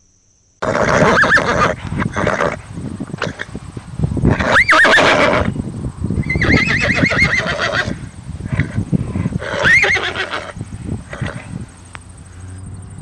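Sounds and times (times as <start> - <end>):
horse whinnying: 0.6 - 3.6, 4.2 - 5.6, 6.2 - 11.5.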